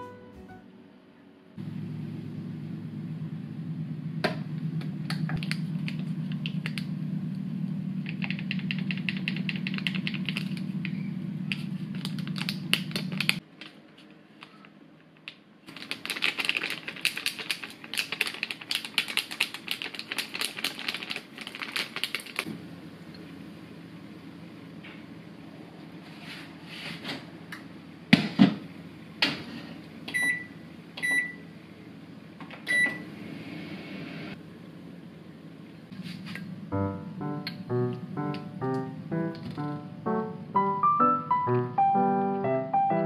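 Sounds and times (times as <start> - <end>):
steady low hum: 34.1 - 40.8.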